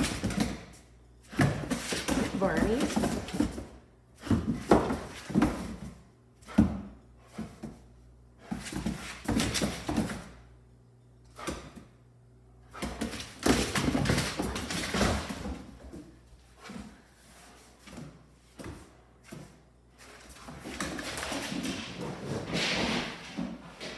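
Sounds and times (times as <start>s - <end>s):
dogs scuffling: 12.8s - 23.9s.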